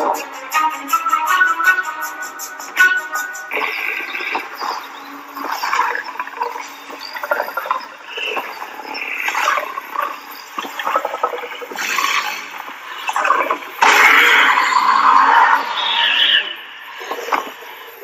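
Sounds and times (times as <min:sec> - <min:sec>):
dinosaur roar: 0:13.2 - 0:16.5.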